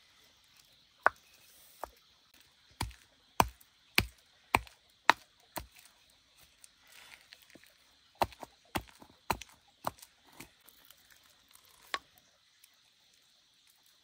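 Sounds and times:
blade chopping: 2.8s - 5.9s.

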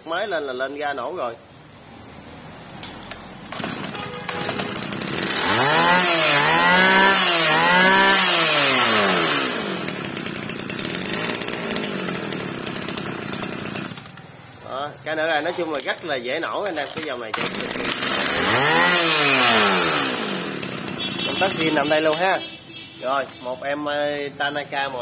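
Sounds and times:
brush cutter engine revving: 3.5s - 14.2s, 16.8s - 22.2s.

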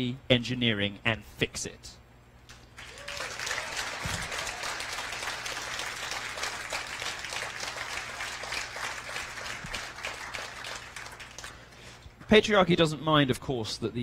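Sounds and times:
audience applauding: 2.8s - 11.8s.

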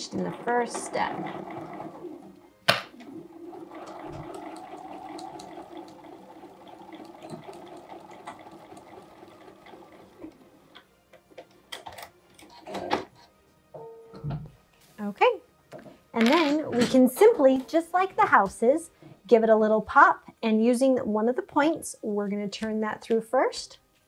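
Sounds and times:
sewing machine stitching: 0.0s - 10.6s.

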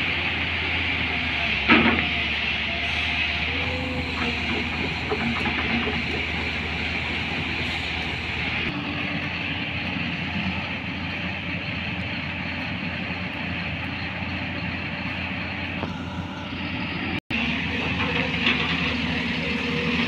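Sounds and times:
heavy diesel engines running: 0.0s - 20.0s.

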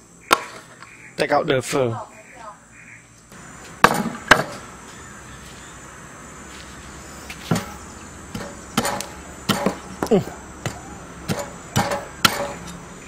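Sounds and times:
knife chopping on wooden board: 8.4s - 9.8s.

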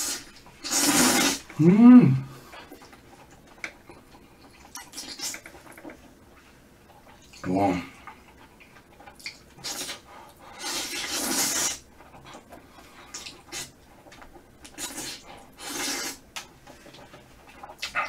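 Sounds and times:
person slurping noodles: 0.0s - 2.2s, 9.6s - 11.8s, 14.7s - 16.2s.

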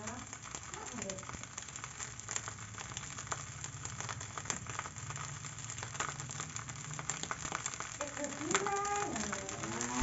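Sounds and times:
rice sizzling in a wok: 0.0s - 10.0s
small crackles: 0.0s - 10.0s.

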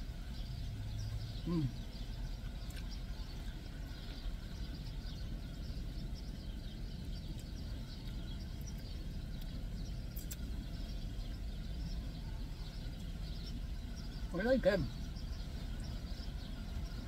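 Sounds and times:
birds chirping: 0.0s - 17.0s
steady low rumble: 0.0s - 17.0s
faint clicks: 7.3s - 10.5s.

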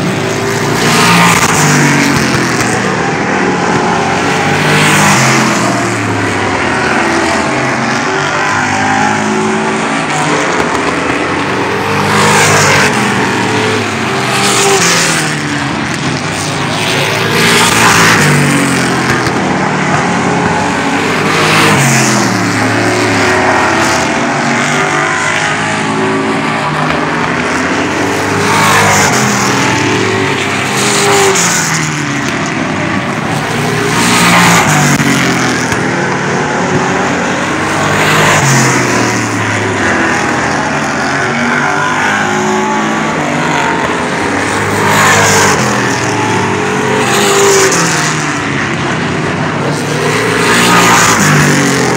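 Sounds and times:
race car engines passing: 0.0s - 51.9s.

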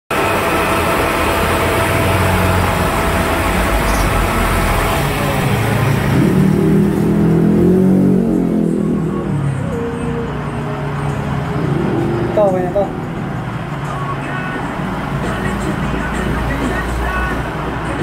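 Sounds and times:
milling machine hum with whine: 0.1s - 7.8s.

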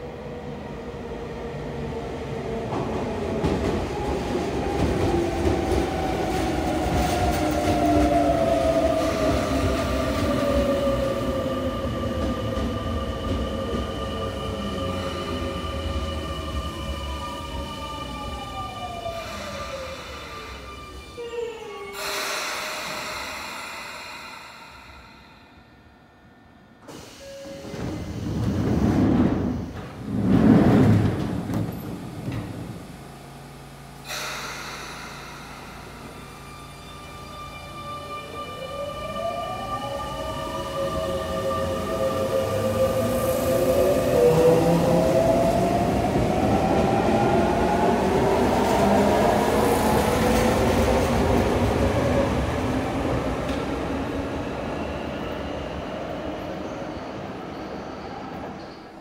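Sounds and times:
train doors sliding shut: 26.8s - 32.8s
electric train inverter whine: 32.1s - 52.6s.

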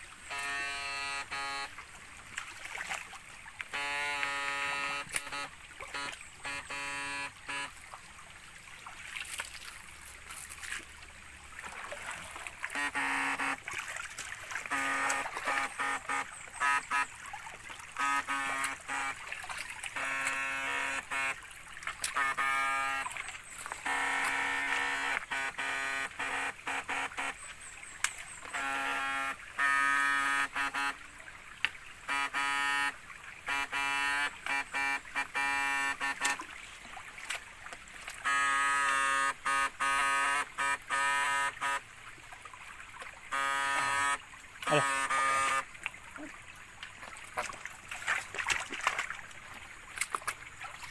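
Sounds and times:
water trickling over stones: 0.0s - 50.9s
inverter buzzing: 0.2s - 1.8s, 3.7s - 7.8s, 12.7s - 13.7s, 14.6s - 17.1s, 18.0s - 19.2s, 19.9s - 21.4s, 22.0s - 27.4s, 28.4s - 31.0s, 32.0s - 36.4s, 38.2s - 41.8s, 43.3s - 45.7s.

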